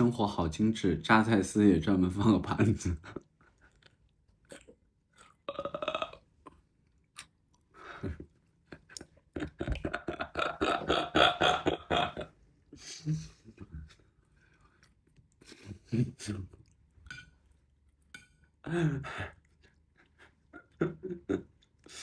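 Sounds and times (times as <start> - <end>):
mouth clicks and chewing: 6.4 - 7.8.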